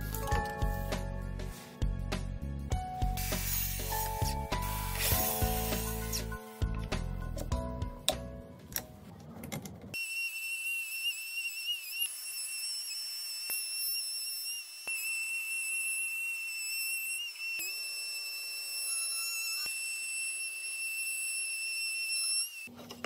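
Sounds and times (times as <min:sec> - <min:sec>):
router high-pitched whine: 0:10.0 - 0:22.7.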